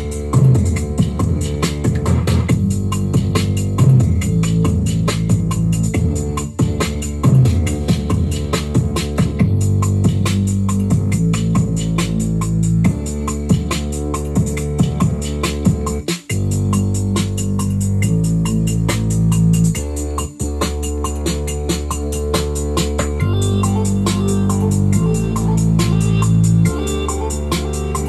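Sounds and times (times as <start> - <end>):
fast electronic beat ticks: 0.0 - 28.0
held bass and chord tones: 0.0 - 28.0.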